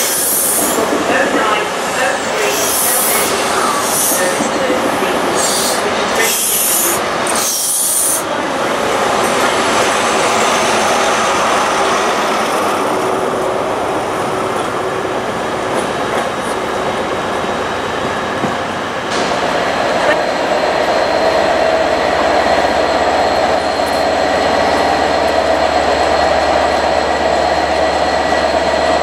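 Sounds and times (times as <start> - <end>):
diesel locomotive passing: 0.0 - 29.0
train coaches rolling past: 0.0 - 29.0
train wheel squeal: 5.4 - 8.2.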